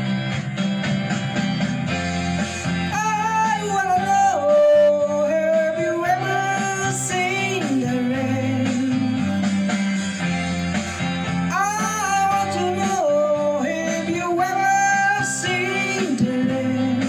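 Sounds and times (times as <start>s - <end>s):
backing track with guitar: 0.0s - 17.0s
man singing into microphone: 2.9s - 9.6s, 11.4s - 17.0s.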